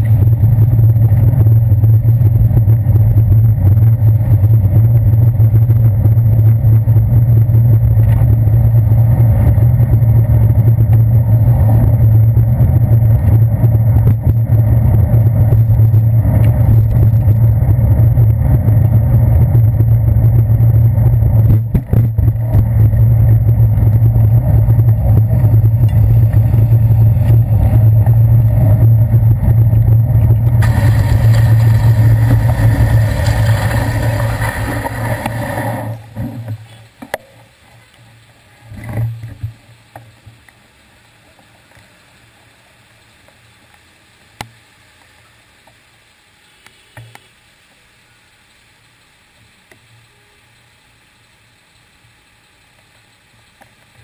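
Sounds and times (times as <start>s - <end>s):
road vibration and wind rumble: 0.0s - 41.2s
hiss: 30.6s - 36.1s
faint street traffic: 32.5s - 54.0s.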